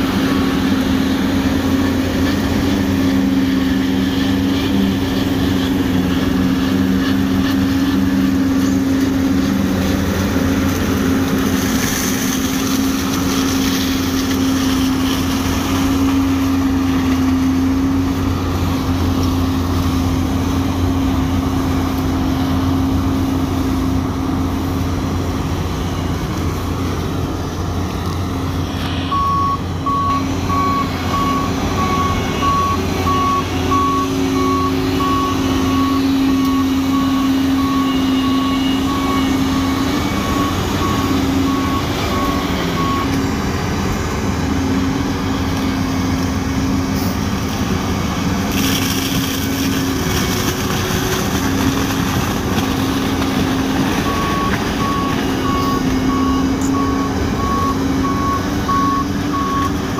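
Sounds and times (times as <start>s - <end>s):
combine harvester engine drone: 0.0s - 59.9s
reversing alarm beeping: 28.7s - 43.5s, 53.6s - 59.9s.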